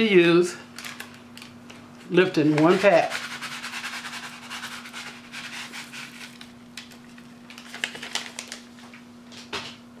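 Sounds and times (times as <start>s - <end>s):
foil packet crinkling: 5.2s - 9.0s.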